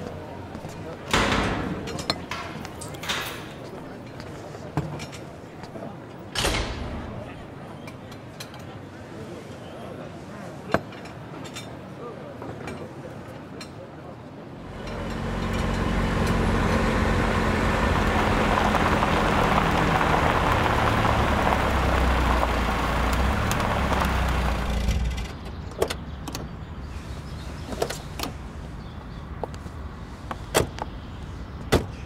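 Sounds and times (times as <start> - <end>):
car engine and road noise: 14.4 - 32.0.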